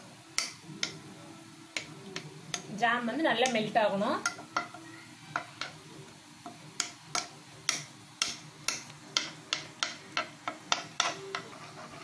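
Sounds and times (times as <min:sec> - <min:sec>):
metal spoon scraping a pan: 0:06.4 - 0:12.0.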